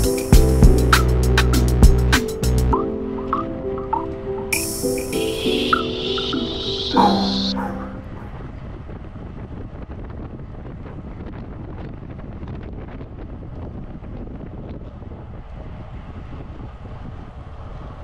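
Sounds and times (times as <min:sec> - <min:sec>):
wind buffeting microphone: 0:08.0 - 0:18.0.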